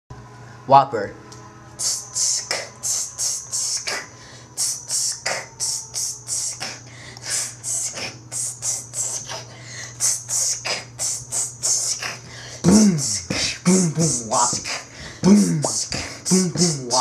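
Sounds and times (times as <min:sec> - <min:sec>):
low electrical hum: 0:00.1 - 0:17.0
beatboxing hi-hat sounds: 0:01.8 - 0:17.0
beatboxing deeper boom strokes: 0:10.0 - 0:17.0.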